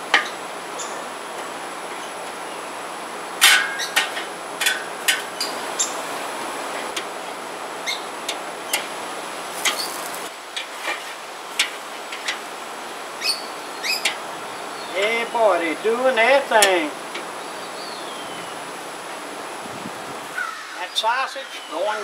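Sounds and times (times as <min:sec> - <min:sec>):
food sizzling: 0:08.6 - 0:12.3
metal tongs clinking on grill grate: 0:09.5 - 0:10.7.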